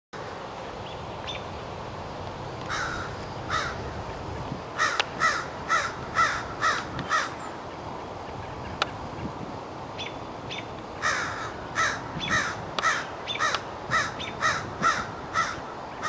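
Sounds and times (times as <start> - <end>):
crow cawing: 2.7 - 3.8, 4.8 - 7.4, 11.0 - 15.7.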